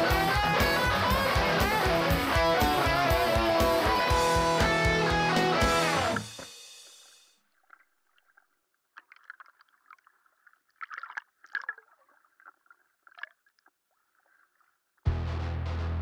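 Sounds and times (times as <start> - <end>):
underwater bubbling and crackling: 7.5 - 15.0.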